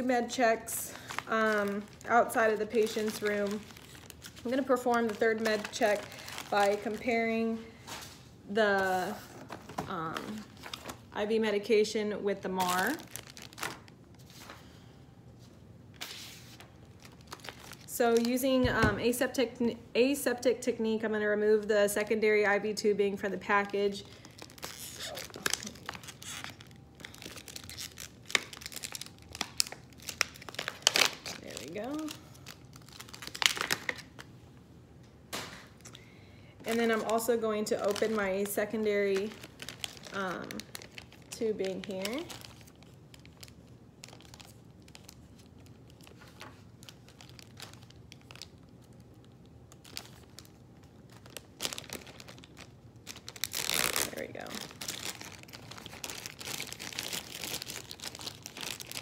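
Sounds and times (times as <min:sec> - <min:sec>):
plastic crackling: 0:00.3 - 0:08.1, 0:12.4 - 0:14.6, 0:16.6 - 0:19.3, 0:23.8 - 0:34.3, 0:36.6 - 0:59.0
paper and plastic package tearing: 0:00.9 - 0:07.2, 0:12.6 - 0:14.5, 0:16.0 - 0:18.4, 0:24.0 - 0:34.3, 0:36.7 - 0:59.0.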